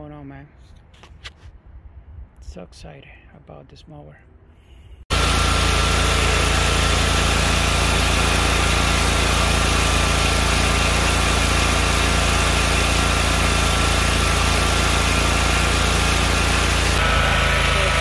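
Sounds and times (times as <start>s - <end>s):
mower engine running steadily: 5.1s - 18.0s.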